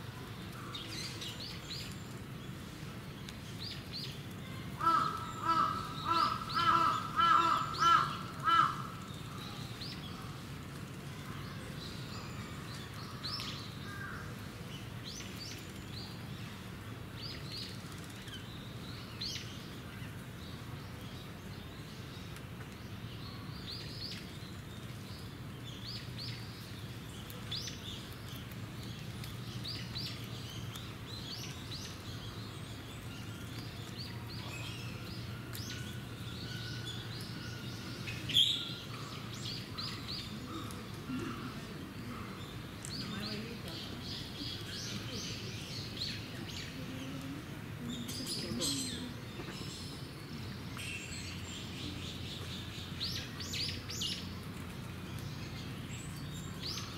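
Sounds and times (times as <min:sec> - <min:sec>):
small birds chirping: 0:00.0 - 0:56.9
crow cawing: 0:04.8 - 0:09.0.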